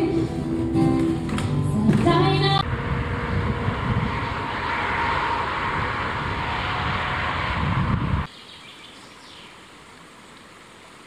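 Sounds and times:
motorway traffic rushing: 0.3 - 8.3.

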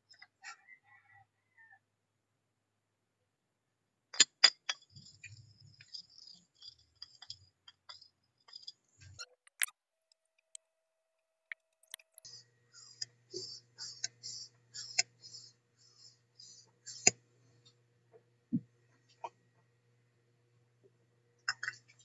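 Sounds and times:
metal parts clicking and clinking: 4.2 - 10.6
small ticks and scrapes: 4.2 - 10.6.

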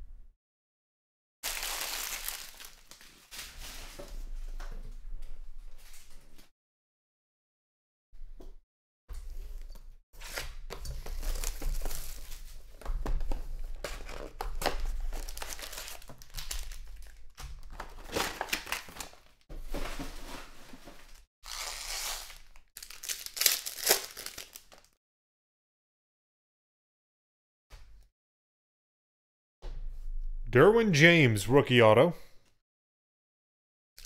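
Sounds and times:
foil wrappers crinkling and tearing: 1.4 - 3.8, 11.0 - 12.6, 13.7 - 19.4, 21.0 - 25.0.

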